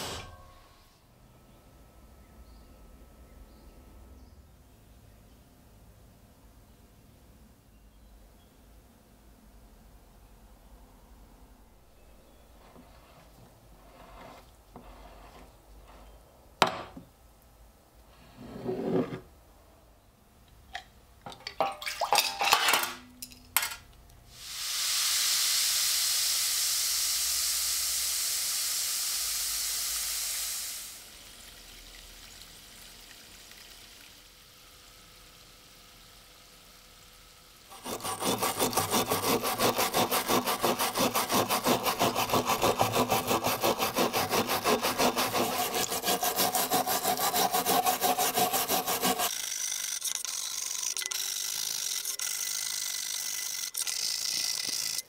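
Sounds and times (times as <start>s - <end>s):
steady hiss: 24.2s - 38.7s
stiff brush scrubbing metal: 37.7s - 49.3s.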